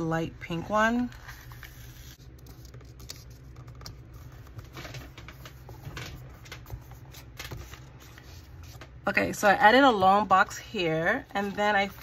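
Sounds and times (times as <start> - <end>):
low steady hum: 0.0 - 12.0
paper rustling: 1.0 - 8.9.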